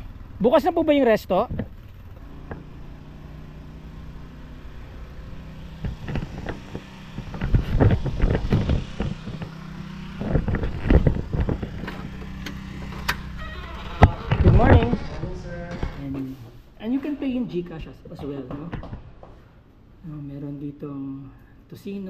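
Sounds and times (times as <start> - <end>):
engine idling: 0.0 - 15.8
irregular knocks and thumps: 1.4 - 2.7, 5.6 - 13.3, 18.2 - 19.4.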